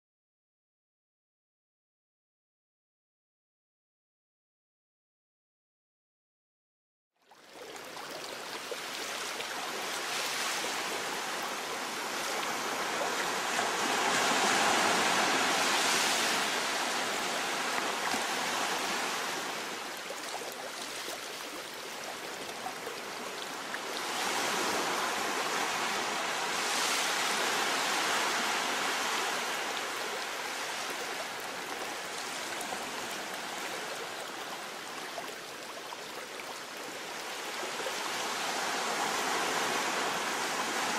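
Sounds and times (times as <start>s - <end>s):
ocean surf breaking on rocks: 10.0s - 19.9s, 23.5s - 33.7s, 38.0s - 40.9s.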